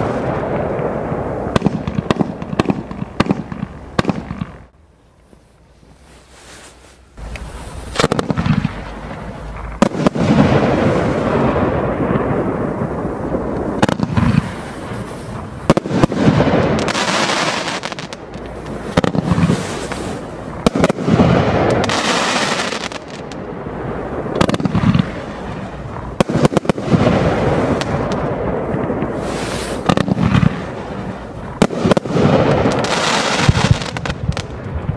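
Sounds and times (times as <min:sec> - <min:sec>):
firework crackling bursts: 0:00.0 - 0:04.8, 0:06.1 - 0:34.9
firework launch bangs: 0:07.2 - 0:34.9.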